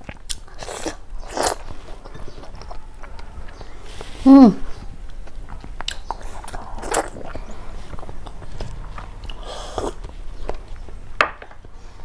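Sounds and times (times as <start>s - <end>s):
chewing with wet clicks: 0.0s - 3.8s, 5.0s - 11.0s
lip smacks: 5.1s - 10.6s.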